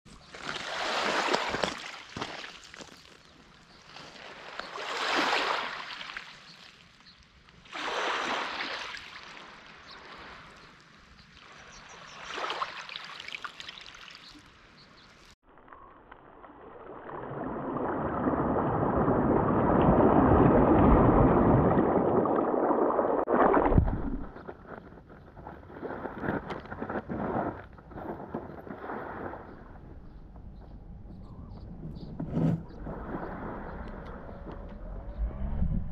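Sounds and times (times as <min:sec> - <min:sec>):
small waves washing ashore: 0:00.3 - 0:02.8, 0:03.8 - 0:07.0, 0:07.6 - 0:14.3, 0:32.4 - 0:34.4.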